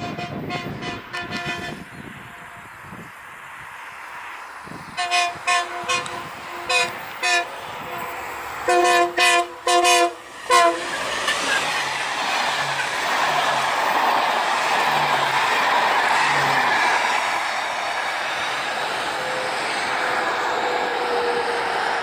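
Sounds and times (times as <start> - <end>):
locomotive horn blasts: 0.0 - 2.7, 5.0 - 11.0, 19.1 - 22.0
train passing at speed: 0.0 - 22.0.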